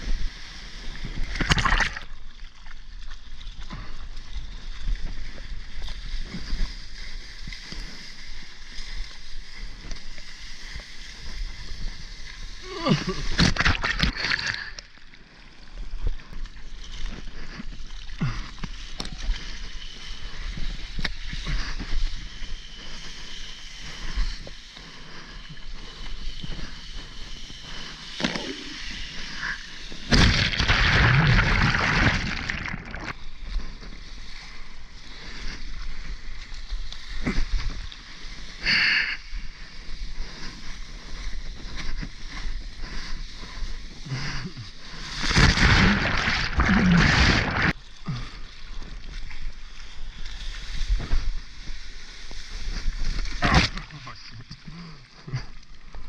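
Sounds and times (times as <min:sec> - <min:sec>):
water splashing against surfboard: 0:30.0 - 0:33.3, 0:45.0 - 0:47.8.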